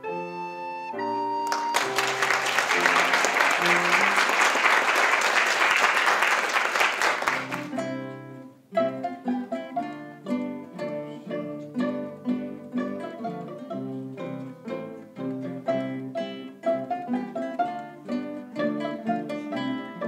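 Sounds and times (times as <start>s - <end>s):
classical guitars playing: 0.0s - 20.0s
audience applause: 1.4s - 7.8s.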